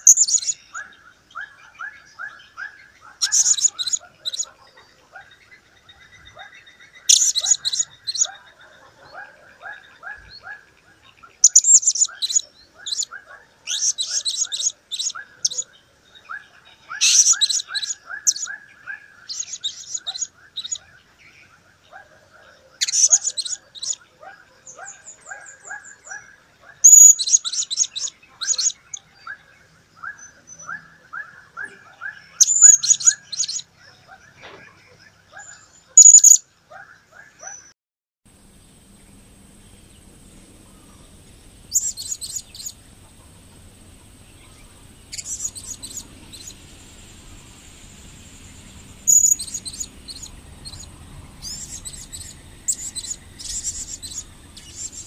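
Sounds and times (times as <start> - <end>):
quieter lower rapid chirping: 0.0 - 1.0, 3.2 - 4.6, 5.3 - 8.9, 11.2 - 15.7, 26.8 - 29.0, 32.4 - 33.6, 36.0 - 36.4, 38.3 - 55.0
parrot shrill rapid chirps: 3.2 - 4.4, 11.4 - 13.0, 17.0 - 18.5, 26.8 - 28.7, 32.4 - 33.6, 36.0 - 36.4, 45.1 - 46.6, 49.0 - 55.0.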